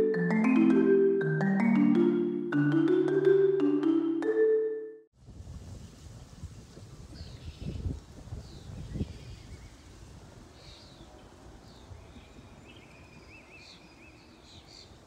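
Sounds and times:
wind rumble on microphone: 5.2 - 13.6
birds chirping: 10.6 - 15.0.

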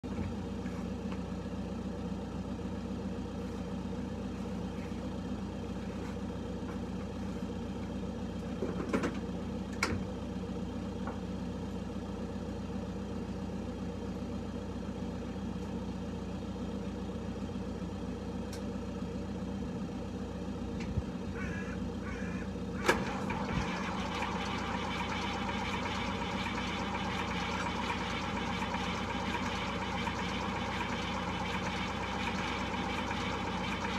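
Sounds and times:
tractor engine starting and idling: 0.0 - 33.9
low hum: 14.8 - 33.9.

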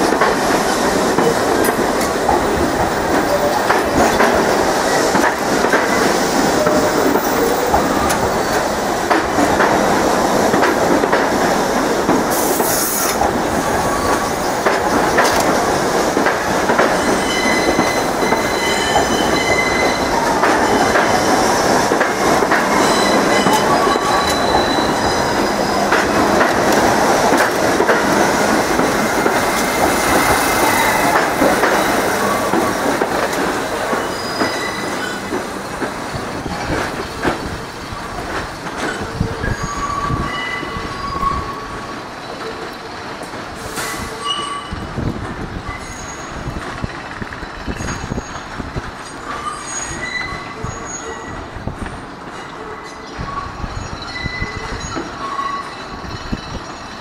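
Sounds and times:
subway train wheels rumbling: 0.0 - 57.0
high wheel squeals: 22.7 - 25.9, 33.9 - 35.4, 38.9 - 42.6, 45.7 - 48.5, 49.1 - 51.5, 52.5 - 57.0.

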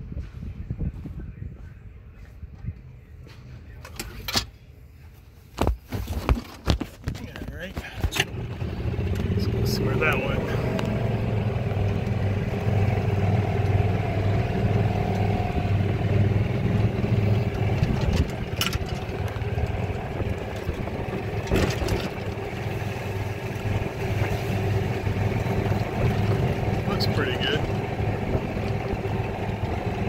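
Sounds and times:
golf cart motor drone: 8.2 - 30.0
short knocks or rattles: 21.4 - 22.4.

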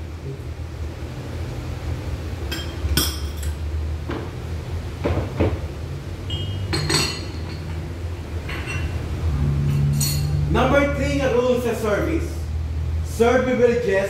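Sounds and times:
crockery and cutlery clinking: 2.5 - 3.6, 6.3 - 9.0, 9.6 - 10.4.

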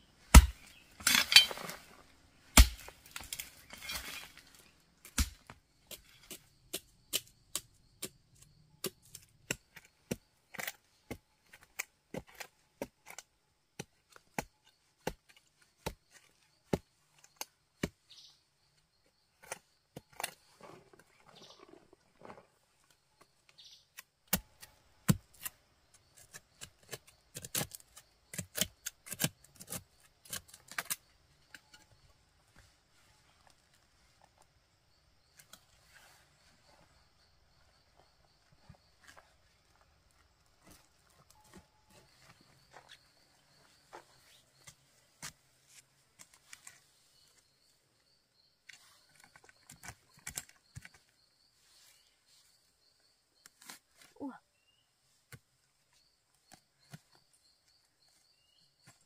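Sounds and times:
digging tool chopping earth: 0.2 - 1.8, 2.5 - 4.4, 5.0 - 18.0, 24.0 - 25.6, 26.2 - 31.0.

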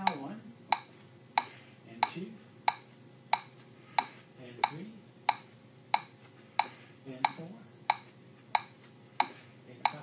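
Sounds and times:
metronome ticking: 0.0 - 3.5, 4.6 - 10.0.

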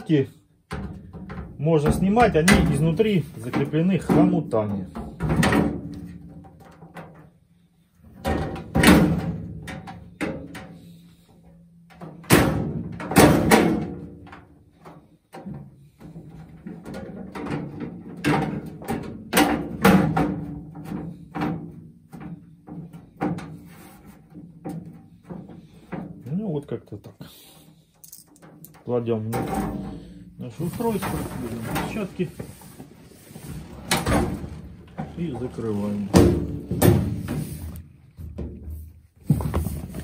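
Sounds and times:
metal grate clanking and rattling: 28.1 - 32.2.

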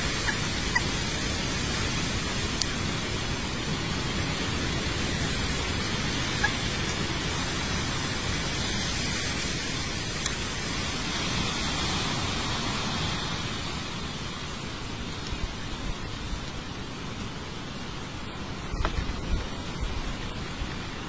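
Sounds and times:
steady background hiss: 0.0 - 21.0
faint ticks: 18.7 - 19.4.

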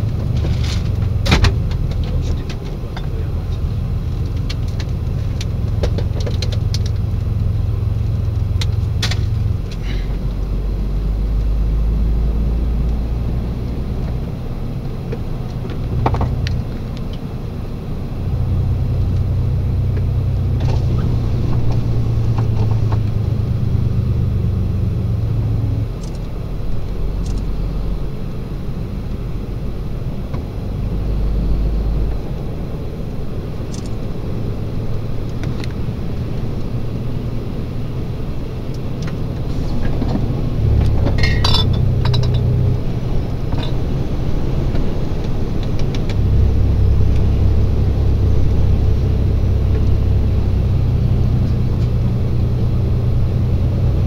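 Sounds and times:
vehicle engine and road drone: 0.0 - 54.0
cab clicks and rattles: 0.1 - 7.5.

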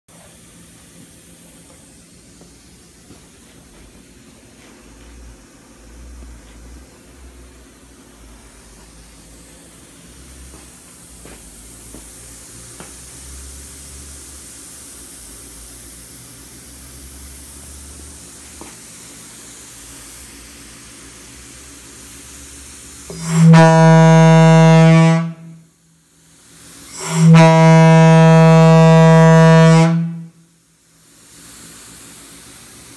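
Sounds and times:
locomotive air horn blasts: 23.1 - 25.7, 26.9 - 30.5.

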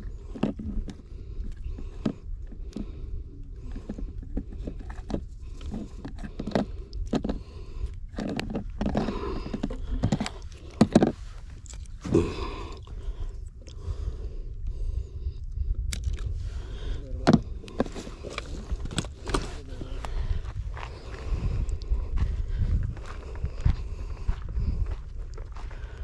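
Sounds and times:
fishing gear clicks and rustles: 0.0 - 13.0, 17.0 - 20.4
wind buffeting microphone: 0.0 - 26.0.

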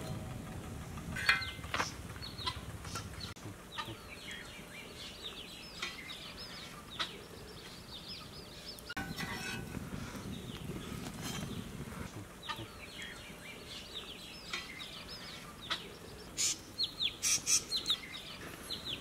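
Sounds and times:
chickens clucking: 1.0 - 4.6, 5.3 - 7.4, 11.4 - 13.4, 14.4 - 19.0.

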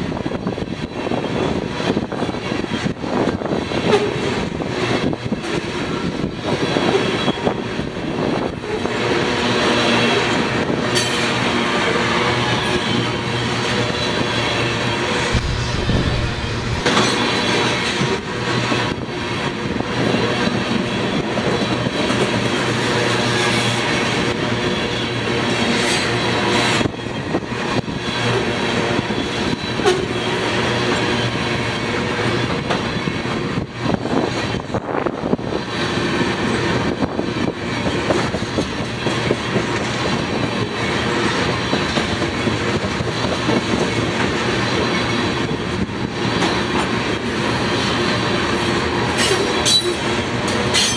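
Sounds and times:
train wheels clattering on rails: 0.0 - 14.6, 15.4 - 50.9.

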